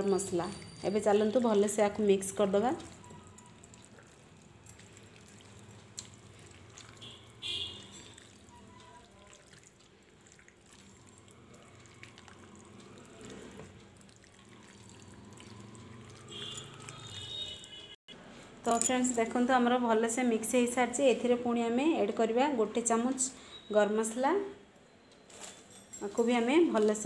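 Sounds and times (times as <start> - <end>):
wet squishing of hand kneading: 2.7 - 17.6
high clink: 18.7 - 19.2.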